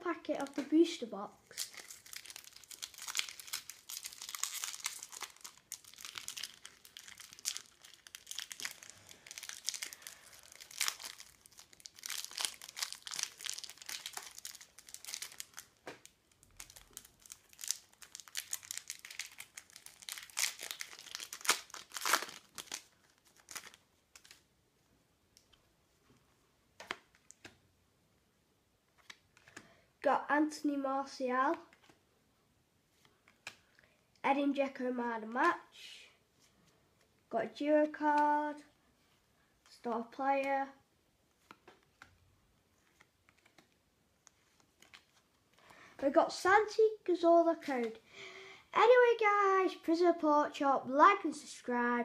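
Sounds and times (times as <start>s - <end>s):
foil wrapper crinkling: 1.5s - 24.4s.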